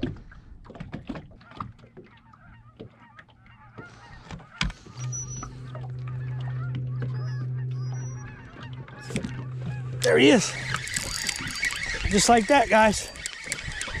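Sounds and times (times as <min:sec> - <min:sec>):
electric motor humming: 0:04.9 - 0:14.0.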